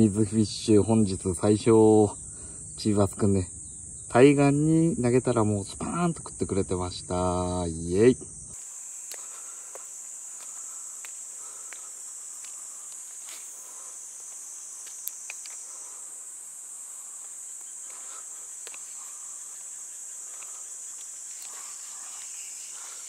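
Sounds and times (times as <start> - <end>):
high-pitched insect chorus: 0.0 - 23.0
faint clicks: 14.8 - 15.6.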